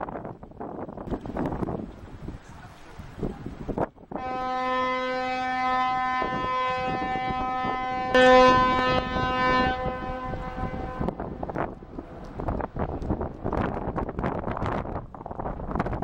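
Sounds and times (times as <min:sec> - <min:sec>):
ship's horn long blast: 0:04.1 - 0:11.2.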